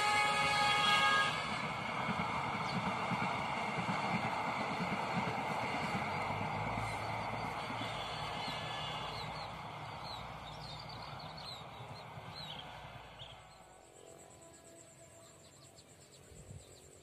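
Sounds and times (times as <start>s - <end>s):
train running noise: 0.0s - 17.0s.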